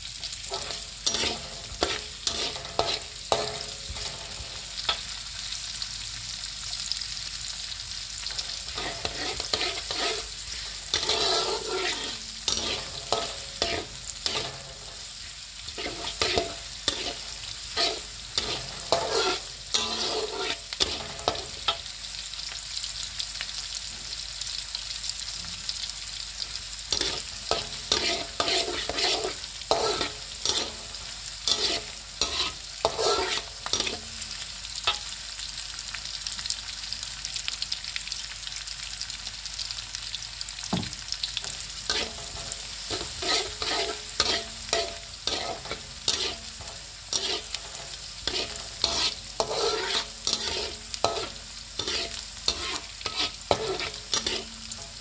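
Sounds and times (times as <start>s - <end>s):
garlic sizzling in hot oil: 0.0s - 55.0s
metal spatula scraping a wok: 0.2s - 5.2s, 8.2s - 21.9s, 26.5s - 35.2s, 41.3s - 55.0s.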